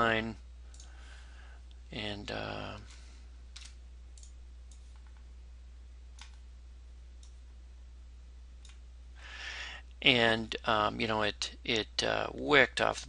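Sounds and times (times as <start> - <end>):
low electrical hum: 0.0 - 13.0
computer mouse clicks: 0.7 - 0.9, 2.9 - 5.3, 6.2 - 6.4, 7.2 - 7.4.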